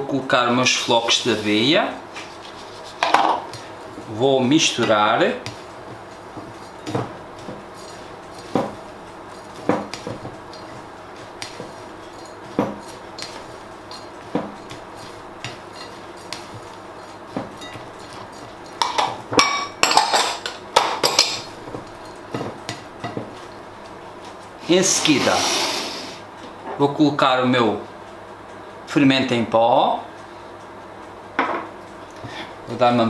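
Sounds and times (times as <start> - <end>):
spatula stirring in glass bowl: 2.2 - 25.3
glass bowls clinking and clattering: 18.6 - 22.5.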